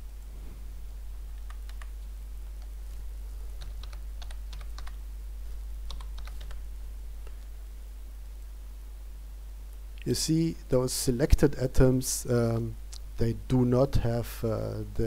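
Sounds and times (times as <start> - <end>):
low steady hum: 0.0 - 15.0
typing on computer keyboard: 1.4 - 1.9, 3.6 - 5.0, 5.9 - 6.6.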